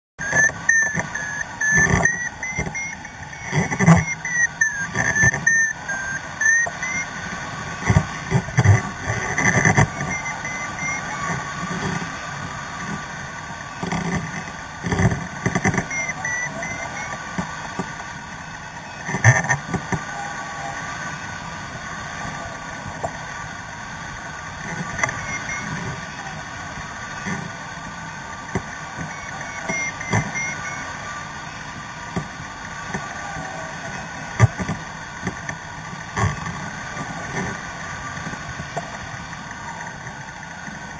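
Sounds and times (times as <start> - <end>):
variometer beeping: 0.2 - 18.0, 24.6 - 26.4, 28.5 - 31.2.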